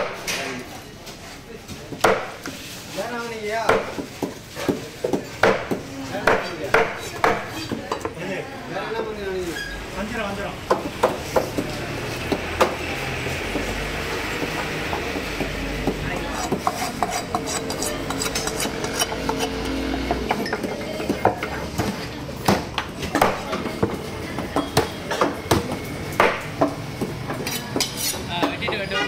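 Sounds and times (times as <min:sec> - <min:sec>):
market din: 0:00.0 - 0:29.0
knife chopping fish on wooden block: 0:03.7 - 0:07.5, 0:15.8 - 0:20.0.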